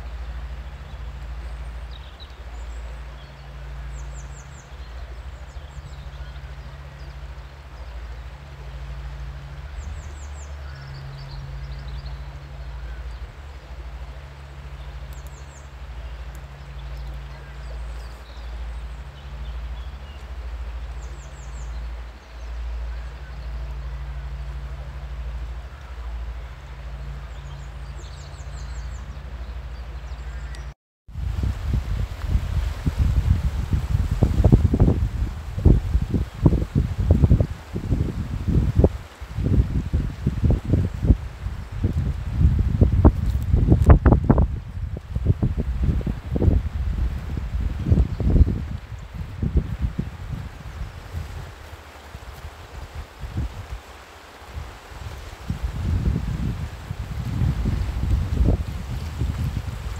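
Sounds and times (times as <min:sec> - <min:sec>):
small birds chirping: 0:00.0 - 0:30.8
wind buffeting microphone: 0:00.0 - 0:59.9
river rushing over rapids: 0:31.2 - 0:59.9.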